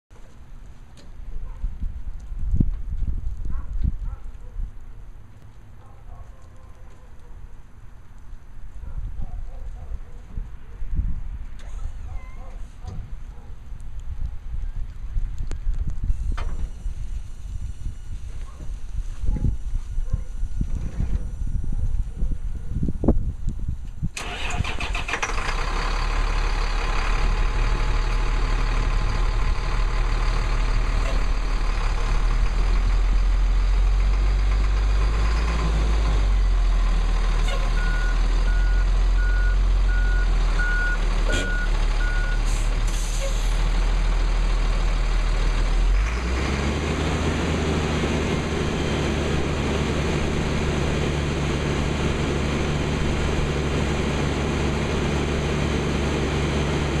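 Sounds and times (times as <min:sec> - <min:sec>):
diesel truck engine idling: 0:24.2 - 0:57.0
reversing beeper: 0:37.4 - 0:43.4, 0:48.4 - 0:49.6
short air hisses: 0:42.4 - 0:43.6.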